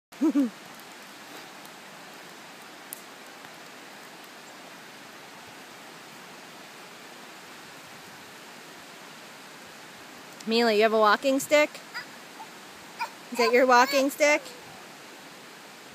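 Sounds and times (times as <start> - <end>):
outdoor background hiss: 0.1 - 15.9.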